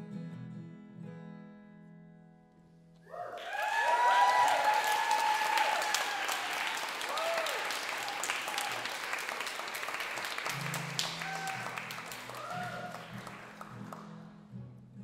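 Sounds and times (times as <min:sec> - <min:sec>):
soft acoustic guitar notes: 0:00.0 - 0:03.0, 0:13.1 - 0:15.0
audience applause: 0:03.1 - 0:14.2.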